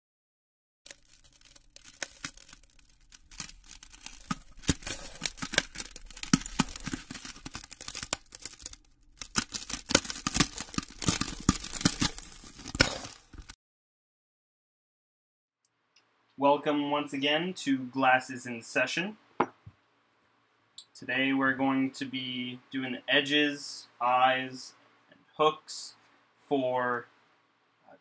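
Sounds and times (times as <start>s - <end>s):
glass shattering: 0.9s - 13.5s.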